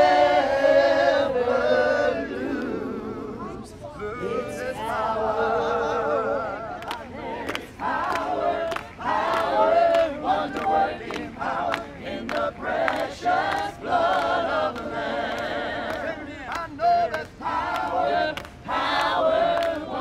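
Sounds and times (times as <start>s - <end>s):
congregation singing unaccompanied: 0.0s - 20.0s
handclaps: 6.8s - 20.0s.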